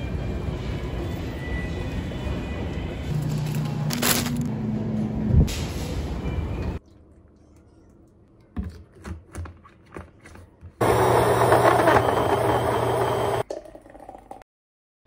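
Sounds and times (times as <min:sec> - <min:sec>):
blender motor running: 0:10.8 - 0:13.4.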